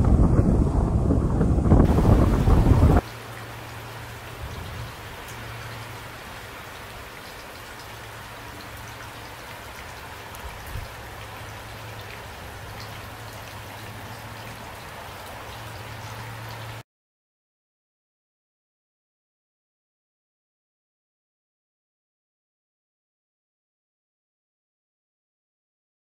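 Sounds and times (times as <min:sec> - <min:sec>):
steady rain falling: 0:00.0 - 0:16.8
raindrops ticking: 0:01.9 - 0:16.8.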